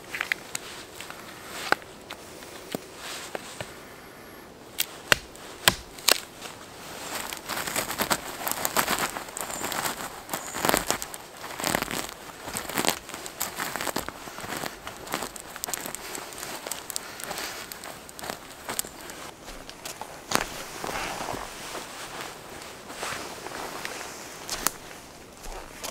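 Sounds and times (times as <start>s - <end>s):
moss ripping and rustling: 4.7s - 25.9s
hatchet splitting kindling: 4.8s - 6.3s.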